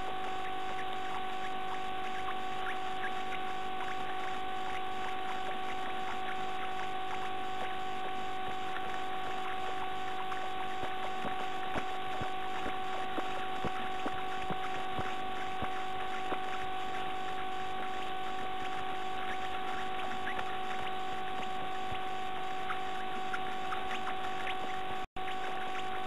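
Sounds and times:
electrical hum and hiss: 0:00.0 - 0:26.0.

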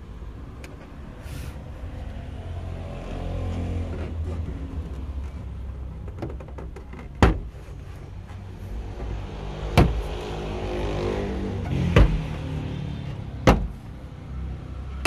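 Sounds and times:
knocks on car door panel: 0:09.7 - 0:10.0, 0:12.0 - 0:12.2, 0:13.4 - 0:13.8.

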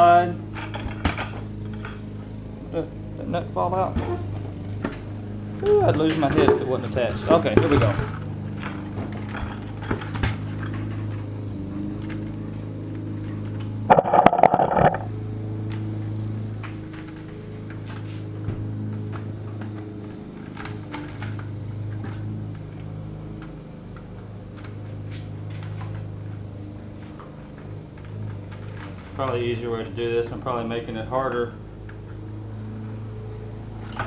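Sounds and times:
loud rattling scrape: 0:13.9 - 0:15.1
steady low hum: 0:13.9 - 0:15.5.

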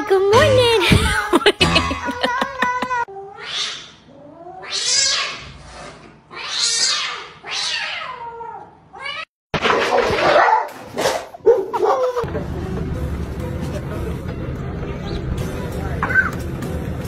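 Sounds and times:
cat hissing and yowling: 0:02.8 - 0:09.3.

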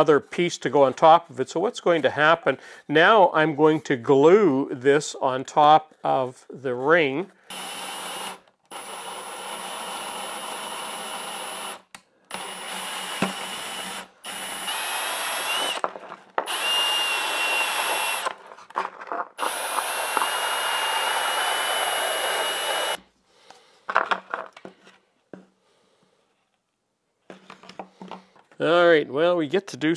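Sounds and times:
drill cutting through plastic: 0:07.5 - 0:23.0.

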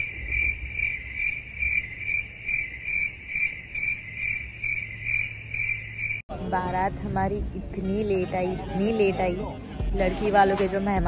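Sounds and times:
crickets chirping: 0:00.0 - 0:06.2.

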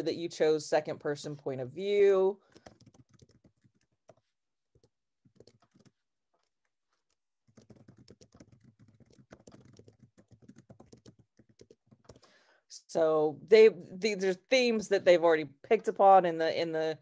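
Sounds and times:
computer keyboard typing: 0:02.4 - 0:12.3.

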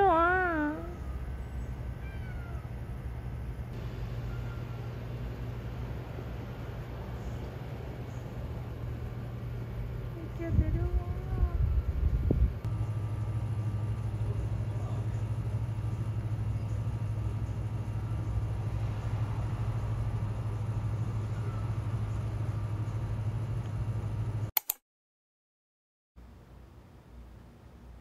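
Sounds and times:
car engine running: 0:11.7 - 0:24.5.

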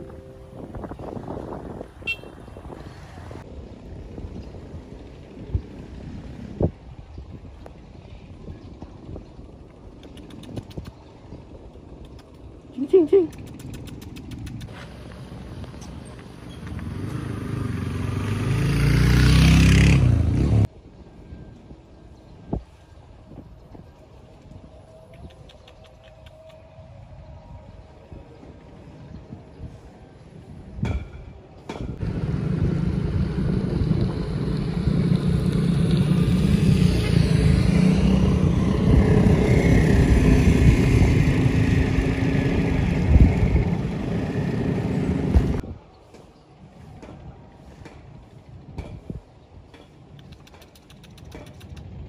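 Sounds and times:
vehicle engine approaching: 0:11.9 - 0:20.7, 0:32.0 - 0:45.6.

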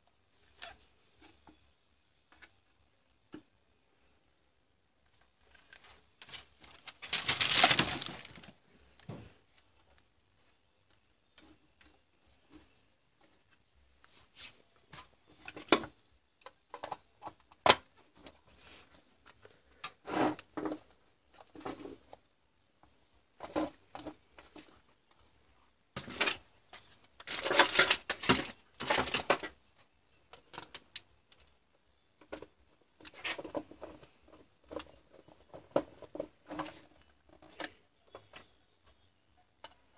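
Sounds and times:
plastic case rustling and scraping: 0:05.4 - 0:09.4.

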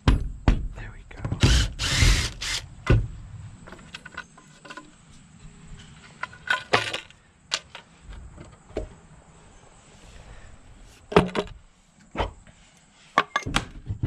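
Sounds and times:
clicks and knocks handling wood and tools: 0:03.6 - 0:09.0.

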